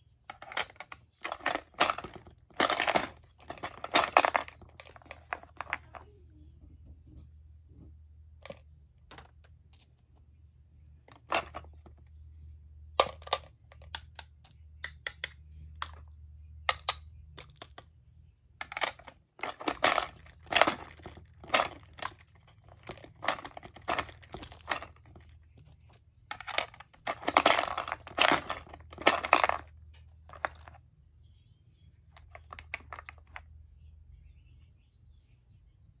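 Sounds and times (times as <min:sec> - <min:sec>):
gumball machine clicking and rattling: 0:00.3 - 0:06.0, 0:18.6 - 0:30.8.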